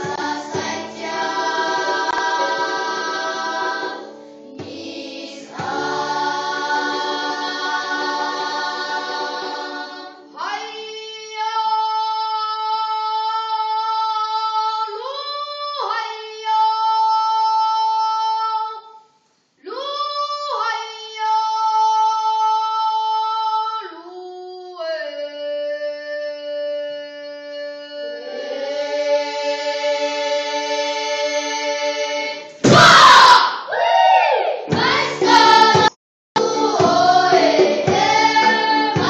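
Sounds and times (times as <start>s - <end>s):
choir singing chord: 0.0s - 10.5s, 34.7s - 39.0s.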